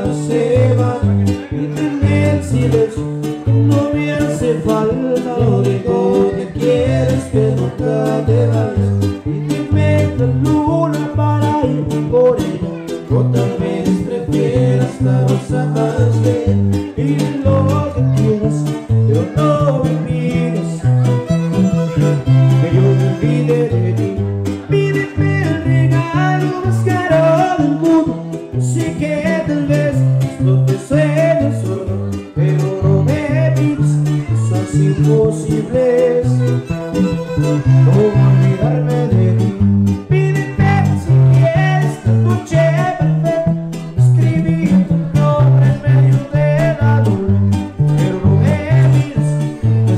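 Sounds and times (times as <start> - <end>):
strummed guitars: 0.0 - 49.9
violin melody: 20.8 - 24.4, 35.8 - 39.9.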